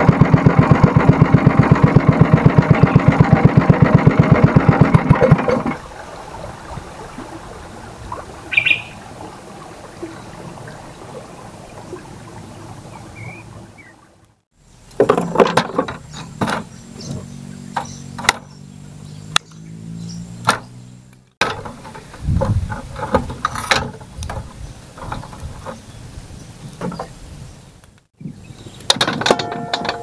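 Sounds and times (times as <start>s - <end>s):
firewood knocking and scraping: 14.9s - 16.8s, 21.4s - 25.9s.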